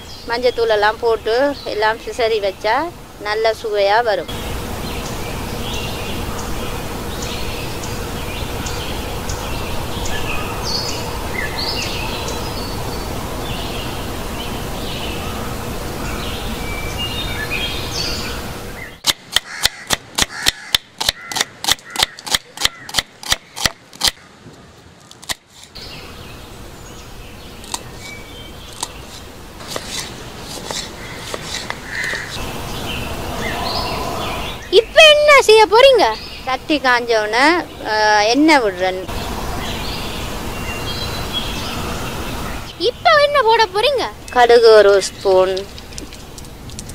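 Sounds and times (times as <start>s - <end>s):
birds chirping: 0.0s - 25.2s, 25.8s - 46.9s
knife chopping on wooden board: 29.6s - 32.3s.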